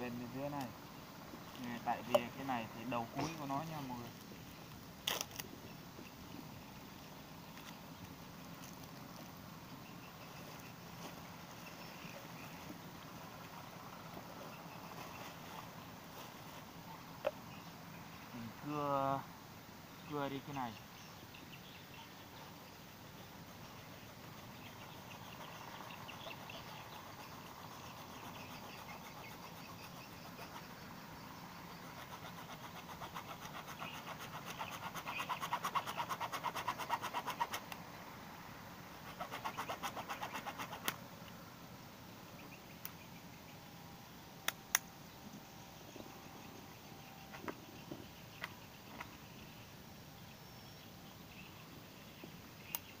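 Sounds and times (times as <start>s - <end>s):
sharp clicks: 44.4s - 44.9s.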